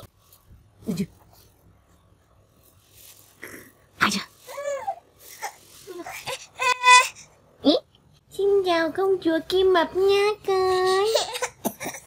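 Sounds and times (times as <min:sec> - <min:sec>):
baby coughing: 0:11.2 - 0:12.0.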